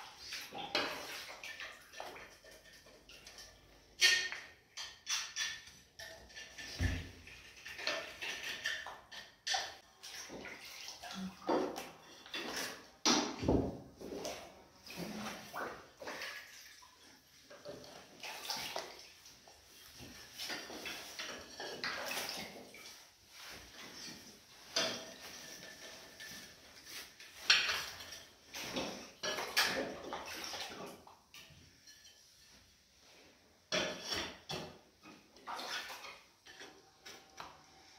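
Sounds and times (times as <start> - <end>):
tiles and tools knocking: 2.0 - 9.8.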